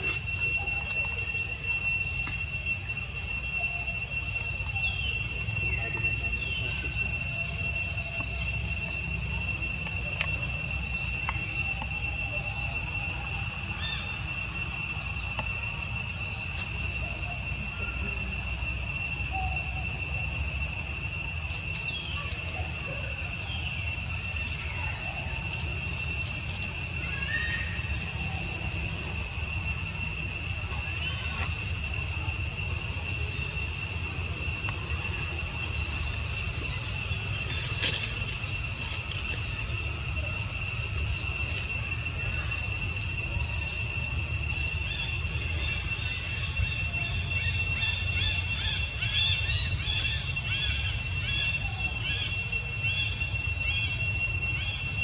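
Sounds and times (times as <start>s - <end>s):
insects droning: 0.0s - 55.0s.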